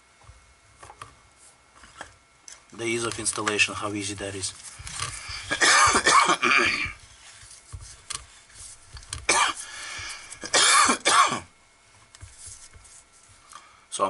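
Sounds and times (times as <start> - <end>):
man coughing: 5.4 - 7.0, 9.3 - 9.7, 10.4 - 11.5.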